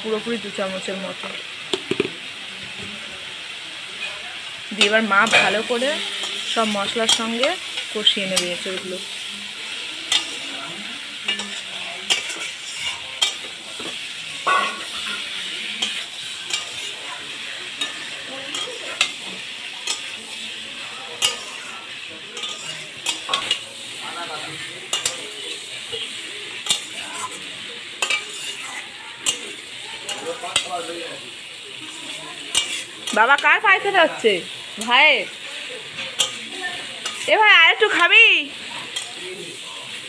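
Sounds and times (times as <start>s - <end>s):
food sizzling in hot oil: 0.0s - 40.0s
metal spatula clinking and scraping: 4.8s - 9.2s, 9.8s - 33.7s, 34.8s - 37.4s, 38.7s - 39.7s.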